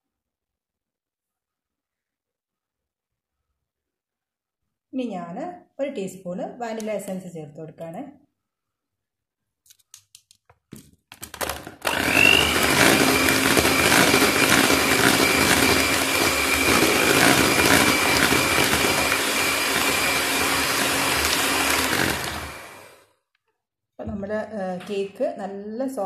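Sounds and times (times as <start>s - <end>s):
electric hand mixer whirring: 11.4s - 23.1s.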